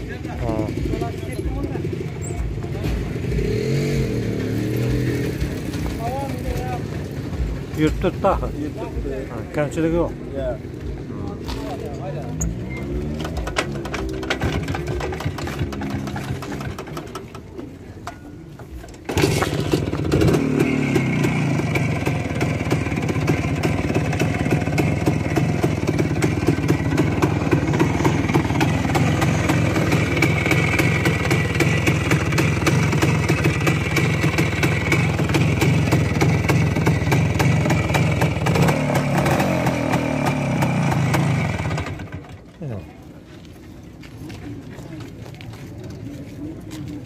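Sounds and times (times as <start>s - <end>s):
engine revving: 2.8s - 6.0s, 12.2s - 17.0s, 19.0s - 42.2s
motorcycle two-stroke engine running: 12.4s - 17.9s, 18.8s - 42.6s.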